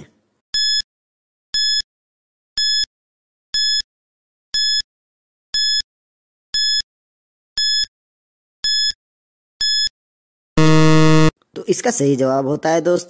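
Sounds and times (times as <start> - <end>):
short high electronic beeps: 10.6 - 11.3.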